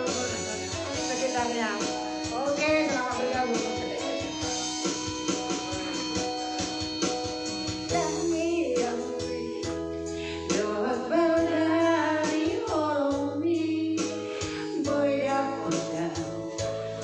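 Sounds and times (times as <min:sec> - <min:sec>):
woman singing into microphone: 0:00.0 - 0:04.4, 0:07.9 - 0:16.6
recorded backing music: 0:00.0 - 0:17.0.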